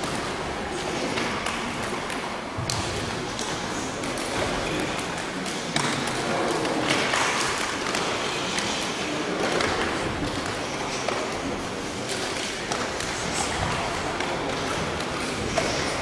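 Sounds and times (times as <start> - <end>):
crowd noise in sports hall: 0.0 - 16.0.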